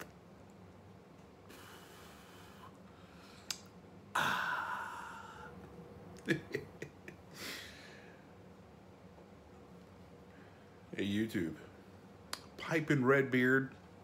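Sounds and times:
man exhaling: 0:01.5 - 0:05.6, 0:07.3 - 0:08.2.

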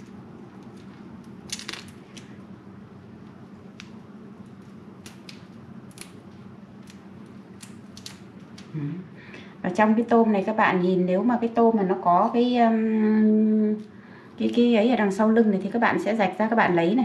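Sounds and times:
shrimp shell cracking: 0:00.0 - 0:02.4, 0:03.7 - 0:08.7
low hum: 0:00.0 - 0:15.9.

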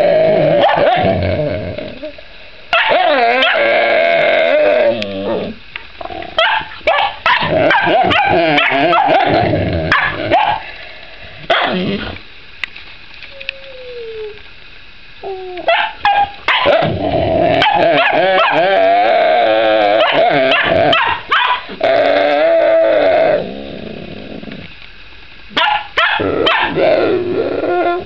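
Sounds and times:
dogs barking and yipping: 0:00.6 - 0:01.1, 0:02.7 - 0:03.6, 0:06.4 - 0:10.7, 0:11.5 - 0:12.2, 0:15.6 - 0:17.0, 0:17.6 - 0:18.7, 0:20.0 - 0:21.8, 0:25.5 - 0:26.8
dogs whining cries: 0:07.3 - 0:10.6, 0:15.2 - 0:23.4.

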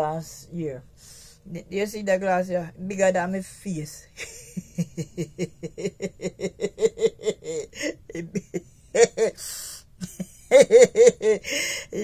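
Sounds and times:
woman laughing: 0:04.2 - 0:12.0.

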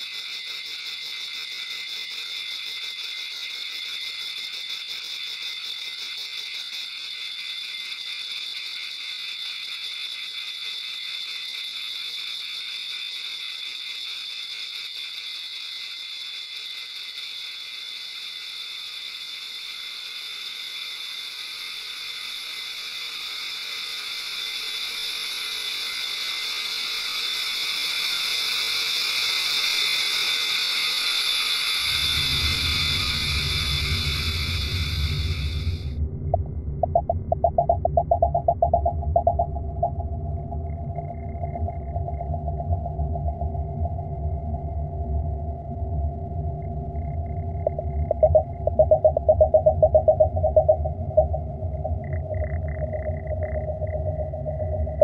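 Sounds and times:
rapid fine electronic clicking: 0:36.4 - 0:40.1, 0:47.6 - 0:55.0.

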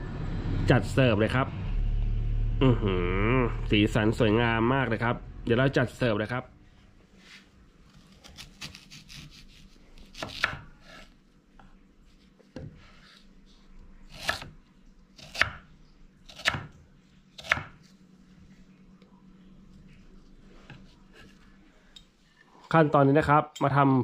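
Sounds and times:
knife cutting on wooden board: 0:07.2 - 0:11.2.

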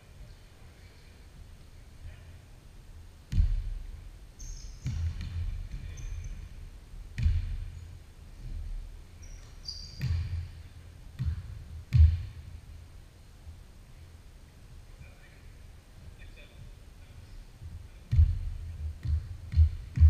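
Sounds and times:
basketball bouncing on hardwood floor: 0:03.3 - 0:03.8, 0:04.4 - 0:06.5, 0:07.2 - 0:07.8, 0:09.2 - 0:10.6, 0:11.2 - 0:12.4, 0:18.1 - 0:20.0
sneaker squeaks: 0:04.4 - 0:06.6, 0:09.2 - 0:11.4.

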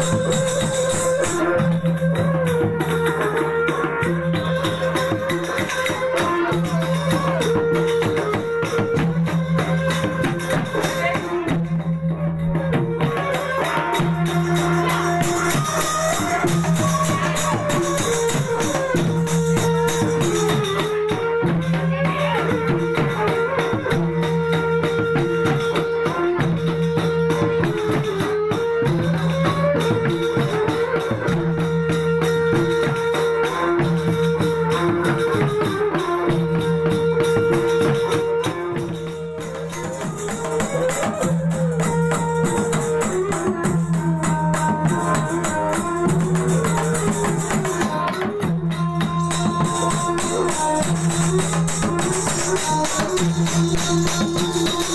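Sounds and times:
jingling cymbals: 0:00.0 - 0:02.4, 0:13.4 - 0:21.8, 0:29.2 - 0:54.9
held wavering melody: 0:00.0 - 0:27.6, 0:28.8 - 0:54.9
hand-beaten drums: 0:00.0 - 0:54.9.

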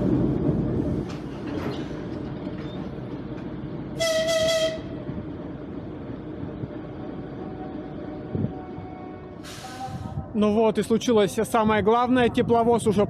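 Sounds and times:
locomotive horn toot: 0:04.0 - 0:05.0.

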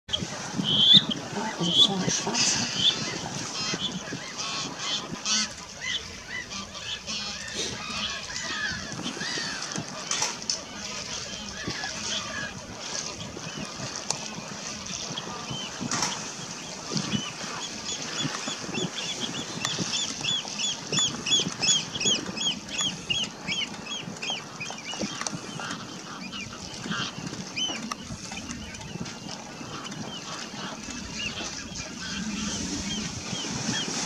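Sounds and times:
grebes whistled calls: 0:00.6 - 0:09.8.

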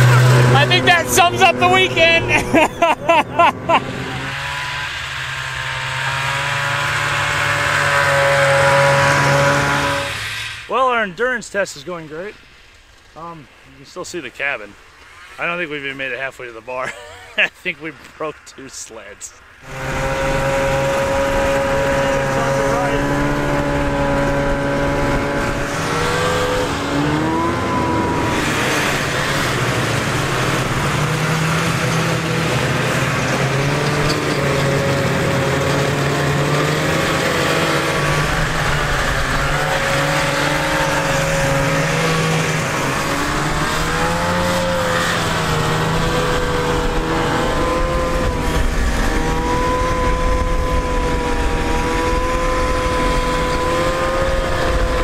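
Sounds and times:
snowmobile engines running: 0:00.0 - 0:55.0.

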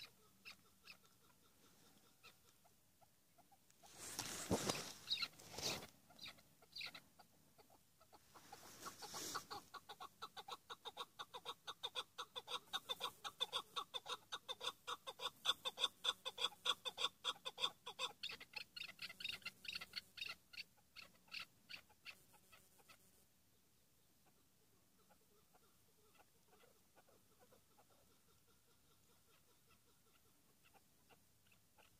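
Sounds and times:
partridge chuck calls: 0:00.0 - 0:23.2, 0:24.1 - 0:31.9.

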